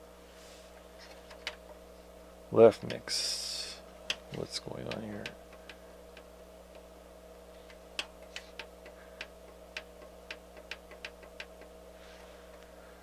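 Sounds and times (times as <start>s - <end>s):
steady low hum: 0.0s - 13.0s
stereo receiver controls clicking: 2.8s - 3.1s, 4.1s - 6.9s, 7.6s - 11.7s.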